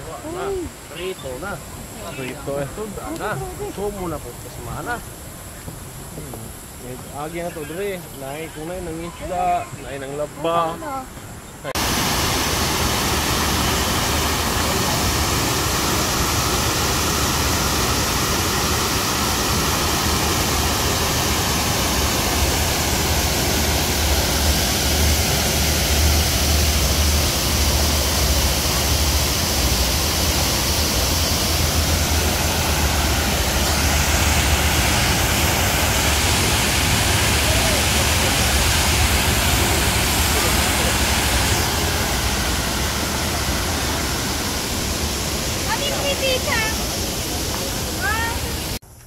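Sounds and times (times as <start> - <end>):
waterfall rushing: 11.7 - 48.8.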